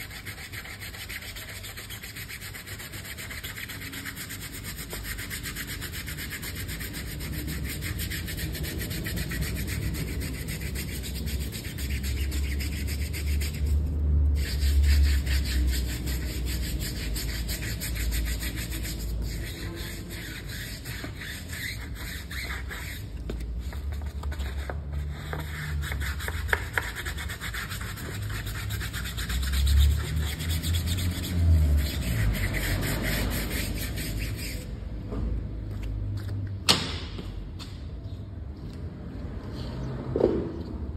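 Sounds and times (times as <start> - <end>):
brush scrubbing car tyre: 0.0 - 34.7.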